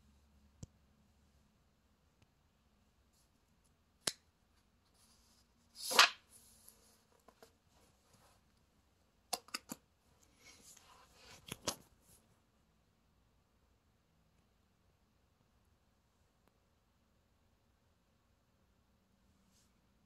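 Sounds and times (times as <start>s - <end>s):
book page turning: 5.8s - 7.5s.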